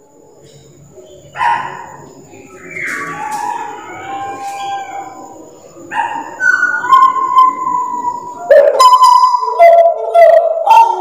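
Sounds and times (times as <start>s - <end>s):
bird singing whistled notes: 2.4s - 5.4s, 6.2s - 10.3s.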